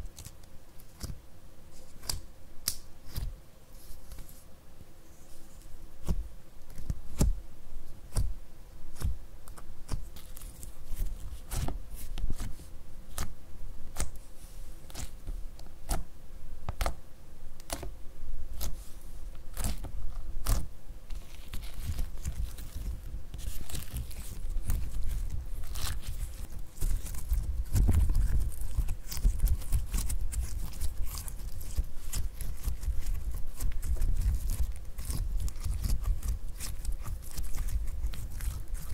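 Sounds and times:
wet squishing of slime: 19.5 - 38.9.

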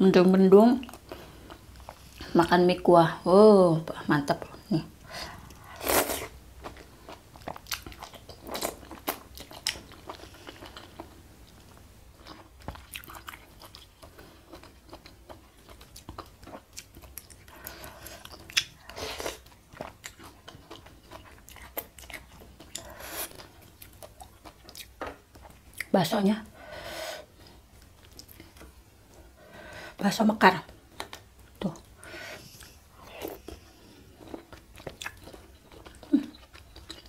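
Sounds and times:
wet chewing: 12.2 - 25.9.

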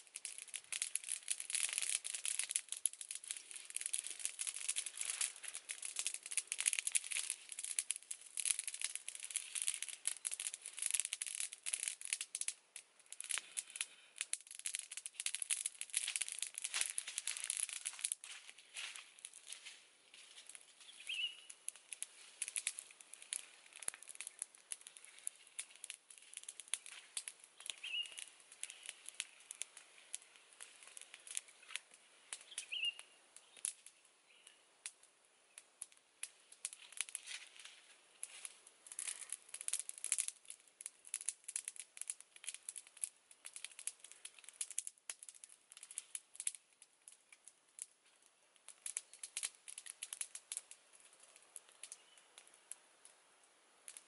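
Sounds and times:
leaves crinkling and tearing: 0.0 - 12.2, 13.3 - 33.8, 36.7 - 40.3
bird chirping: 20.8 - 21.6, 27.6 - 29.0, 32.4 - 33.6, 51.9 - 52.4.

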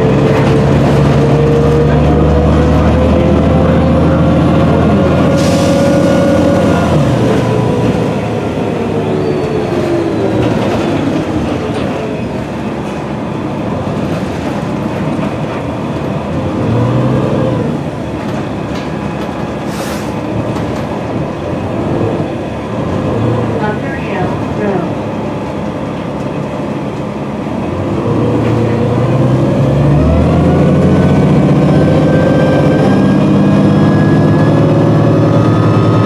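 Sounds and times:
diesel bus engine running: 0.0 - 36.0
road rumble and rattles: 0.0 - 36.0
short air hiss: 19.7 - 20.2.

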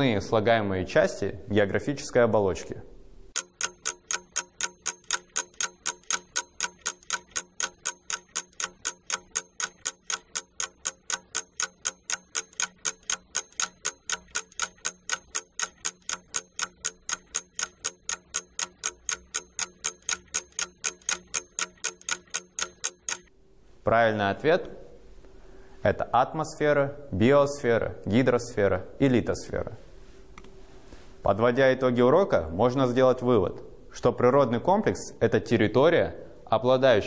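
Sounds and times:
countdown timer ticking: 3.3 - 23.3.

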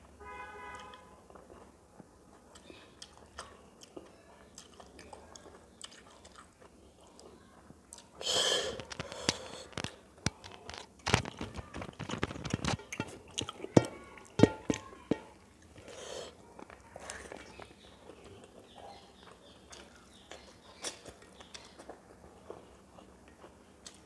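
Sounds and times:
wet chewing and crunching: 0.7 - 8.2, 8.8 - 24.0
fingers mixing rice on steel plate: 8.8 - 16.0.

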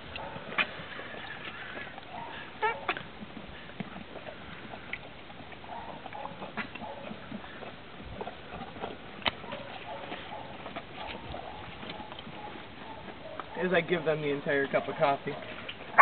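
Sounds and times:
horses slurping: 0.0 - 16.0
lip smacks and muzzle clicks: 3.7 - 13.6.

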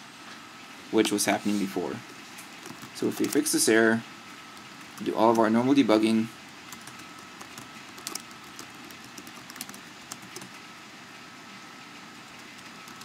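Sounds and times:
keyboard keystrokes: 2.6 - 3.4, 6.7 - 10.6.

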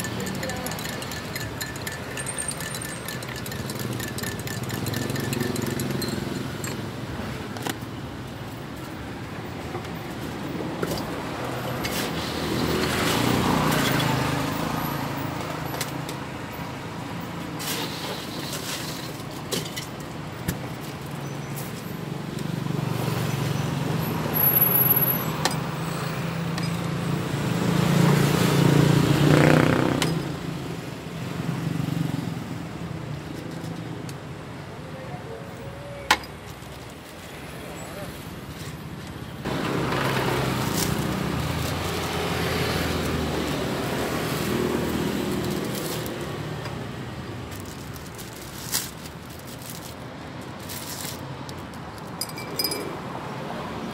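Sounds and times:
vehicles passing close by: 0.0 - 53.9.

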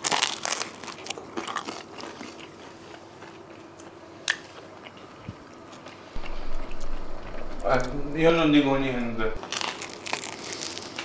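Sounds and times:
chewing: 0.0 - 7.4
crunching crisp pizza: 0.0 - 8.1, 9.4 - 11.0.

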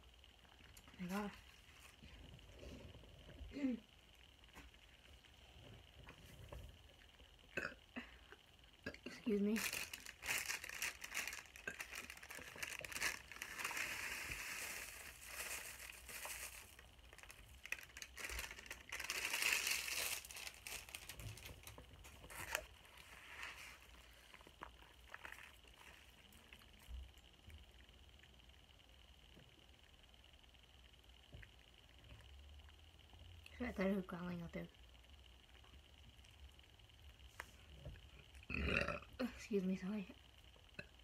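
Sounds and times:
packaging crinkling and rustling: 9.5 - 26.1.

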